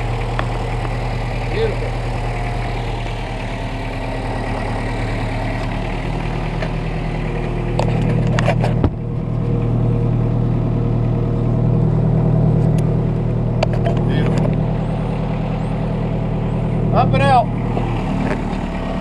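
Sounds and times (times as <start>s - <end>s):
vehicle engine running: 0.0s - 19.0s.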